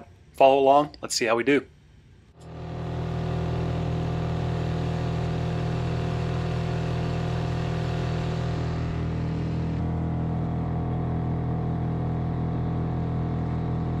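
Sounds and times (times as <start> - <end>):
outboard motor running: 2.4 - 14.0.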